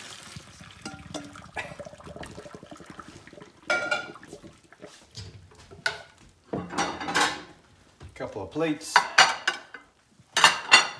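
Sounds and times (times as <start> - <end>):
water splashing into colander: 0.0 - 6.0.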